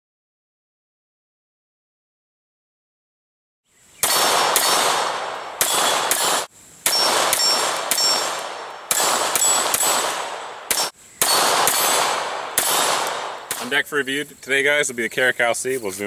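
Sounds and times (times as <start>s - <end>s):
steel targets ringing: 4.0s - 13.8s
pistol shots echoing: 4.0s - 13.9s.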